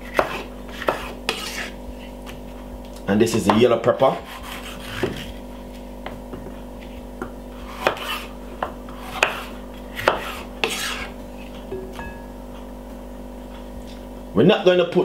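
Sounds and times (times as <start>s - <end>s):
knife chopping on wooden board: 0.0s - 2.4s, 3.3s - 5.4s, 7.2s - 12.0s.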